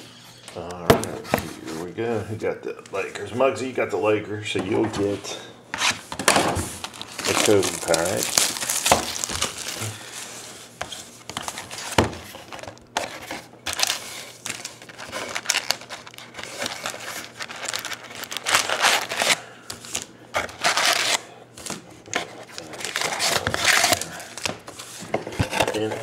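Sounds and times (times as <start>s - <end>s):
card packs crinkling: 6.6s - 26.0s.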